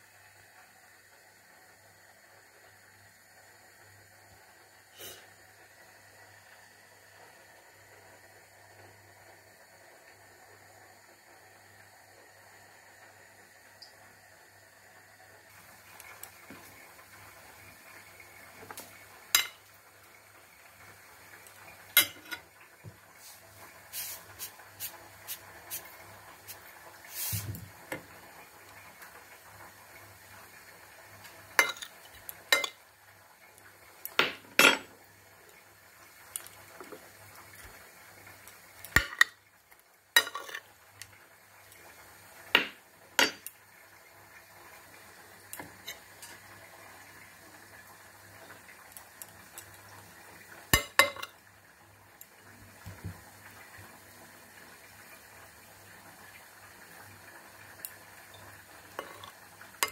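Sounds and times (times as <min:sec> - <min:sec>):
metal spoon clinking on plate: 0:32.6 - 0:32.8, 0:40.2 - 0:40.6, 0:50.8 - 0:51.3, 0:59.0 - 0:59.9.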